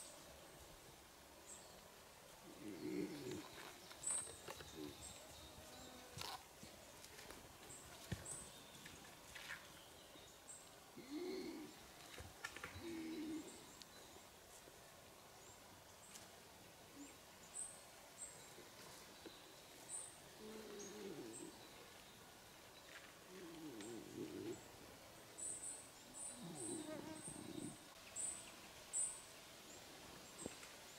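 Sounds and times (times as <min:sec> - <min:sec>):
birdsong chirps: 0:01.4 - 0:14.5, 0:16.9 - 0:30.9
lower longer bird calls: 0:02.4 - 0:06.1, 0:11.0 - 0:14.1, 0:19.9 - 0:22.0, 0:23.2 - 0:24.8, 0:25.4 - 0:28.4.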